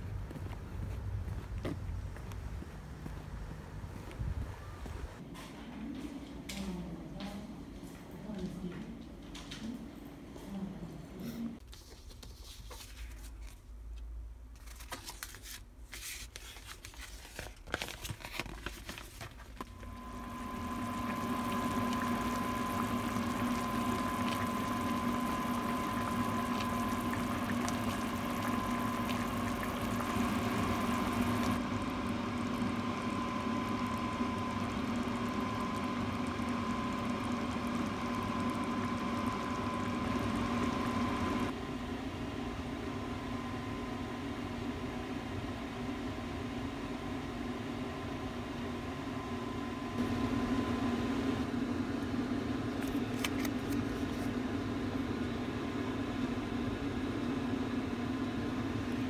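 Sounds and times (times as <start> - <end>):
kitchen hum: 0.0 - 59.0
food packaging clicks and rustles: 14.6 - 19.7
liquid bubbling in a pot: 19.7 - 41.5.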